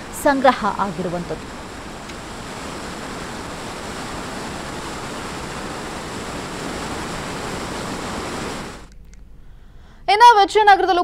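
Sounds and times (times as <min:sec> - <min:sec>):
water rushing over dam: 0:00.0 - 0:08.9.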